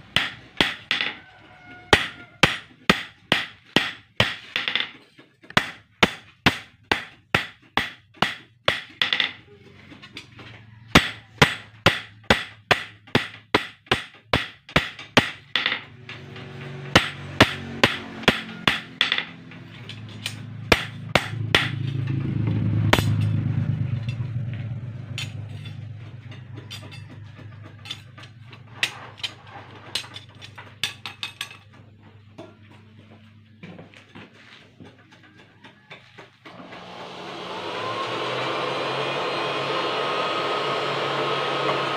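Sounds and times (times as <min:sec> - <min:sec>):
hammer striking steel blade: 0:11.0 - 0:22.2, 0:22.8 - 0:24.3, 0:25.0 - 0:27.1.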